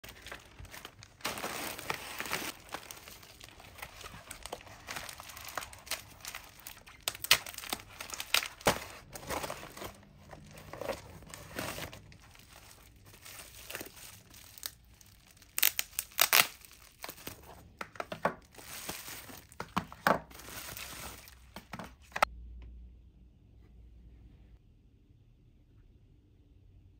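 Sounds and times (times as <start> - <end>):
packaging ripping: 0.0 - 17.6, 18.5 - 22.3
bubble wrap crackling: 0.0 - 22.3
plastic packaging crinkling: 0.0 - 22.3.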